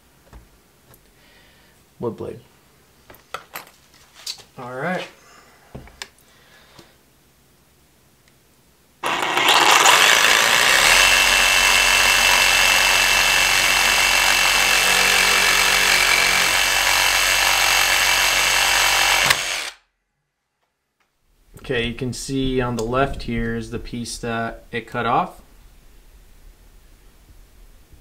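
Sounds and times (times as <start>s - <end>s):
reciprocating saw cutting metal: 9.0s - 19.8s.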